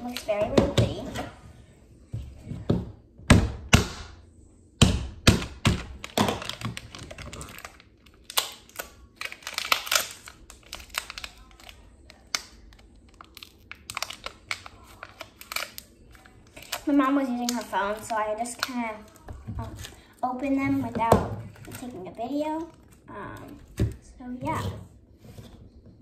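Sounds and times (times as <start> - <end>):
plastic packaging crackling: 5.7 - 20.1, 21.4 - 23.8.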